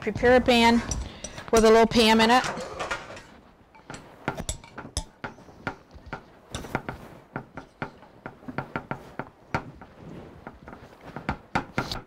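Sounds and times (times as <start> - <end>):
hands patting dough: 3.9 - 12.0.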